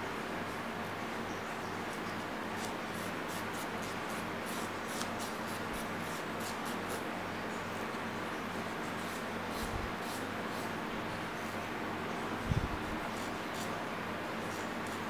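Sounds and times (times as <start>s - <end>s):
nail file rasping: 2.6s - 7.0s.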